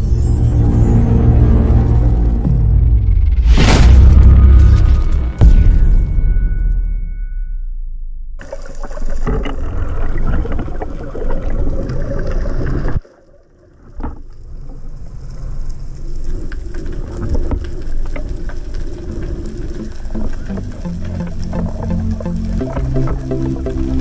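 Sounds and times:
crackling clicks: 8.4s - 24.0s
underwater rush of water: 8.4s - 24.0s.

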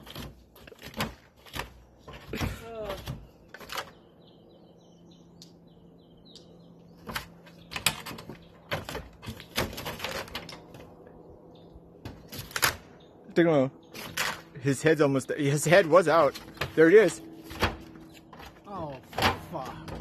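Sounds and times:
small bird chirping: 3.2s - 8.7s.

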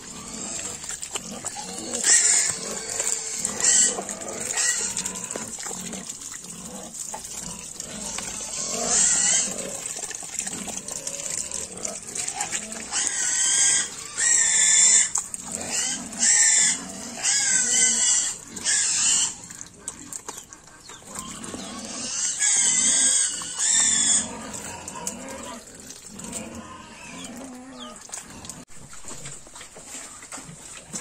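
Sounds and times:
pigs squealing: 0.0s - 30.2s
pigs grunting: 0.0s - 31.0s.

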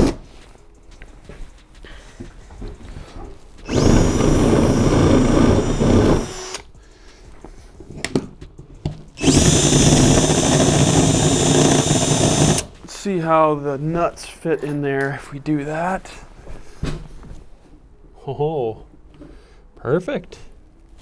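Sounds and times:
cordless drill whining under load: 3.7s - 6.7s, 9.2s - 12.7s.

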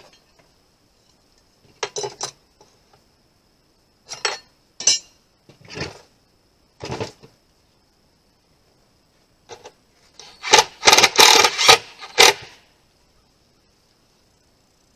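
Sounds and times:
tools and screws clinking: 1.8s - 2.4s, 4.1s - 5.2s.

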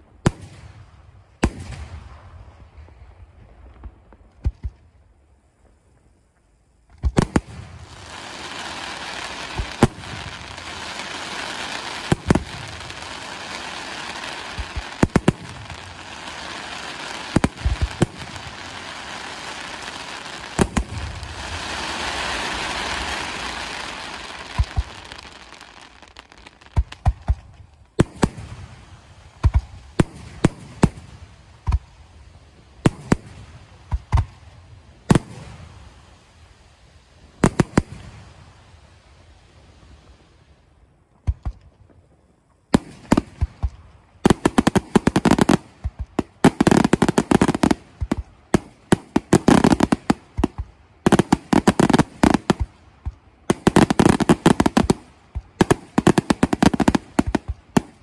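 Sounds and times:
fireworks hiss and crackle: 0.0s - 58.0s
firework bangs: 6.9s - 31.8s, 42.8s - 58.0s.

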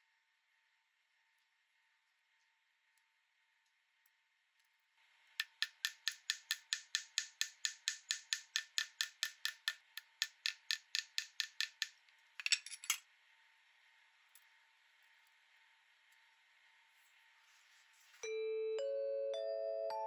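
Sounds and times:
small hammer tapping metal: 5.4s - 13.0s.

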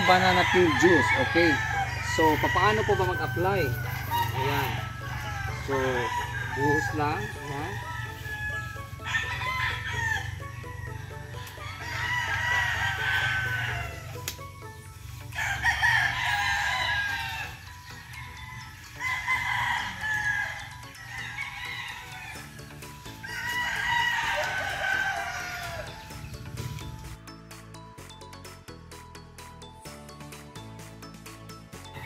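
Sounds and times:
rooster crowing: 0.0s - 14.3s, 15.2s - 26.3s.

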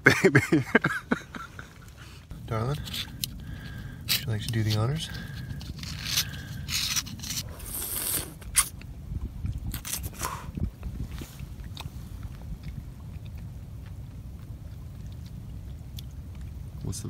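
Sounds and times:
low steady rumble: 0.0s - 17.0s
oyster slurping: 5.0s - 8.8s.

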